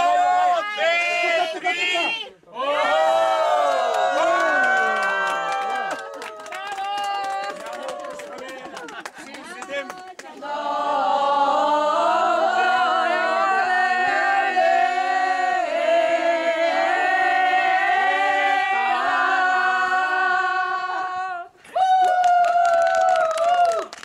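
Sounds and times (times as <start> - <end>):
people clapping: 2.9 - 10.8, 21.6 - 24.0
group singing unaccompanied: 9.6 - 21.5.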